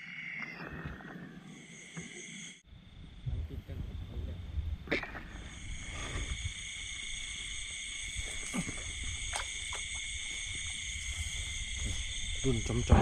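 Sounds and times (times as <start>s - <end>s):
insects and frogs trilling: 0.0s - 13.0s.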